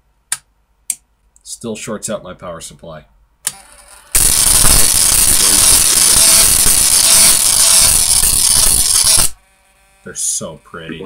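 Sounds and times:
electric arc crackling and buzzing: 0:04.2 - 0:09.4.

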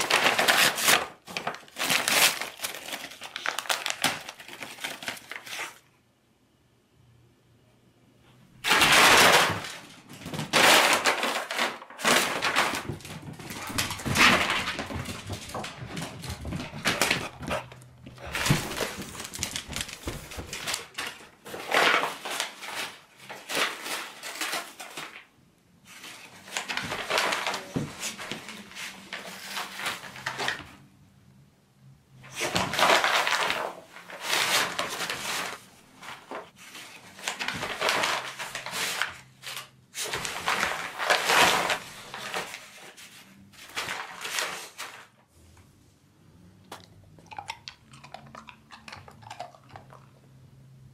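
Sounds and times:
paper bags crinkling and ripping: 0:00.0 - 0:05.9, 0:08.6 - 0:25.3, 0:25.9 - 0:30.8, 0:32.2 - 0:45.2.

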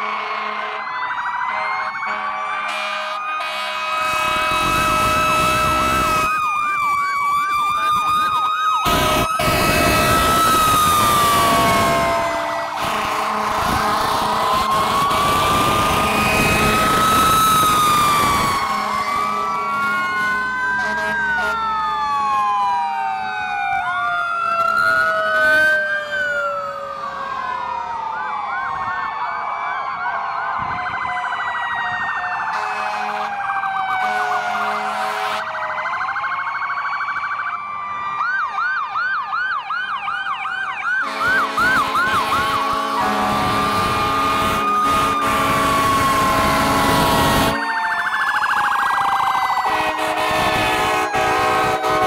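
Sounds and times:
air horn blasts: 0:00.0 - 0:00.8, 0:02.1 - 0:06.4, 0:08.8 - 0:10.6, 0:11.3 - 0:17.0, 0:18.7 - 0:20.0, 0:20.8 - 0:21.6, 0:32.5 - 0:33.4, 0:34.0 - 0:35.5, 0:41.0 - 0:47.7, 0:49.7 - 0:52.0
sirens wailing and yelping: 0:00.0 - 0:52.0.

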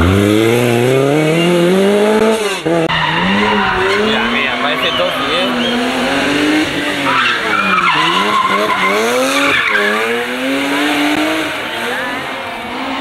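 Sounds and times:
car engine at high revs: 0:00.0 - 0:13.0
tyres squealing: 0:02.9 - 0:13.0.

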